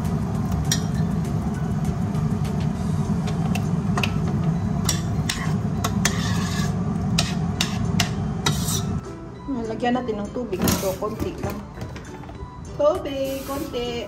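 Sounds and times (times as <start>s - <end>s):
steady low hum: 0.0s - 9.0s
metal spoon scraping a steel pot: 5.2s - 9.0s.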